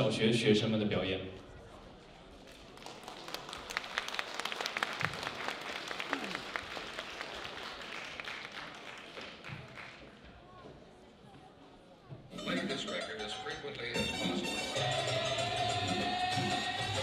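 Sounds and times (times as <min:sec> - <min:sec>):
audience applauding: 0:02.5 - 0:10.1.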